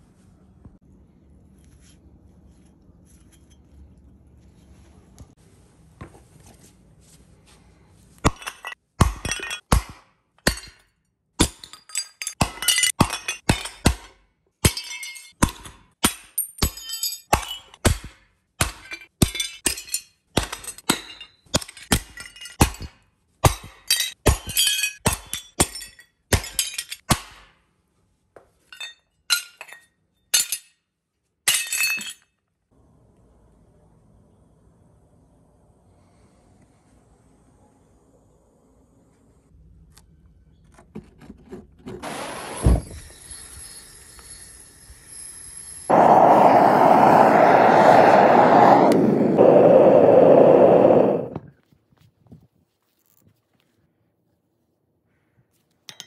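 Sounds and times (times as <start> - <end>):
metal fragments clinking: 11.6 - 13.8, 14.7 - 15.4, 16.3 - 17.8.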